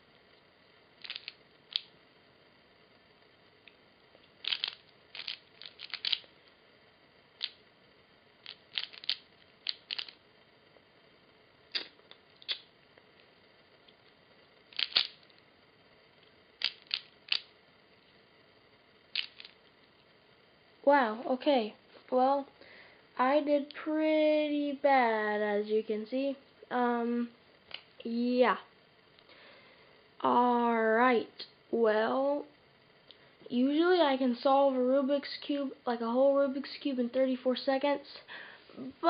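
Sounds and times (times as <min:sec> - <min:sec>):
puzzle cube clicking: 0:01.0 - 0:01.9, 0:04.4 - 0:06.3, 0:07.4 - 0:07.6, 0:08.4 - 0:10.2, 0:14.7 - 0:15.2, 0:16.6 - 0:17.5, 0:19.1 - 0:19.6.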